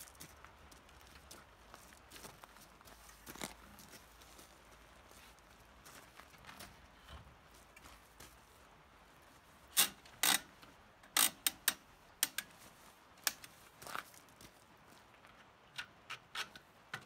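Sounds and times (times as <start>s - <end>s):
bike rack ratchet clicks: 9.8s - 12.5s.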